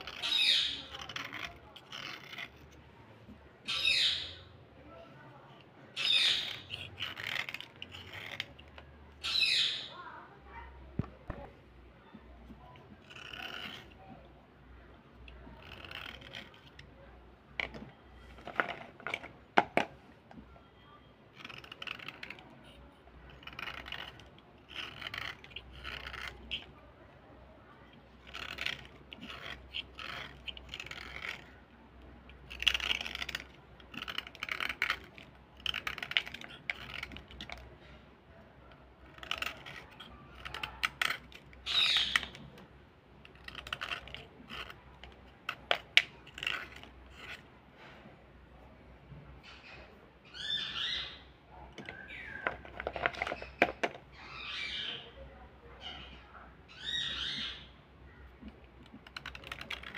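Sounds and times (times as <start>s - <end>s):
knife blade scraping slate pencil: 0.0s - 2.8s, 5.9s - 9.9s, 12.4s - 14.2s, 14.9s - 19.9s, 21.3s - 27.1s, 27.7s - 38.0s, 38.6s - 47.5s, 58.4s - 59.9s.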